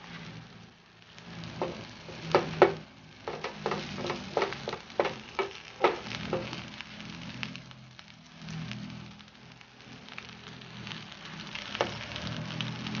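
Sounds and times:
patty sizzling in a pan: 0:00.0 - 0:13.0
spatula tapping on food: 0:01.6 - 0:06.6.

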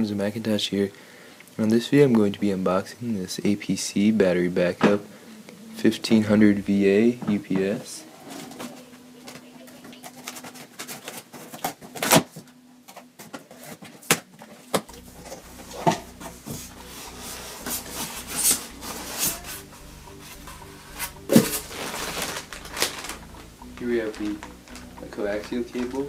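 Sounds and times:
packing material rustling: 0:08.0 - 0:26.0
cardboard scraping: 0:13.2 - 0:24.4.

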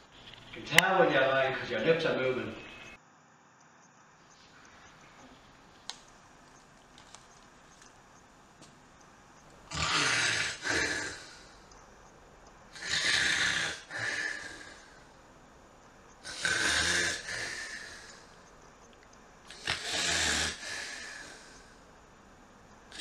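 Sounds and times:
man snoring: 0:09.7 - 0:11.6, 0:12.7 - 0:15.0, 0:16.2 - 0:18.2, 0:19.5 - 0:21.7.

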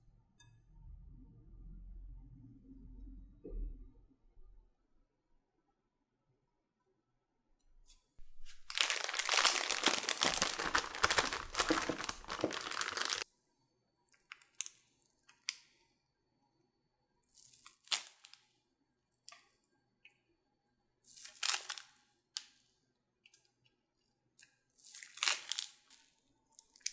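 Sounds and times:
plastic piping bag crinkling: 0:08.2 - 0:13.2, 0:17.4 - 0:18.4, 0:21.1 - 0:22.0, 0:24.8 - 0:26.9.

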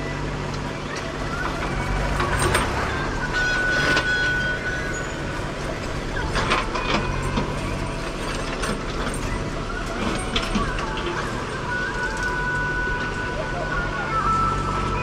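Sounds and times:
diesel engine running: 0:00.0 - 0:15.0
digger bucket clanking: 0:00.0 - 0:15.0.

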